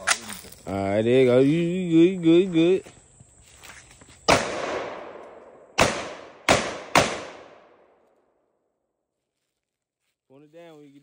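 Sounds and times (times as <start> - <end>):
gunshots with echo: 4.3 - 7.9.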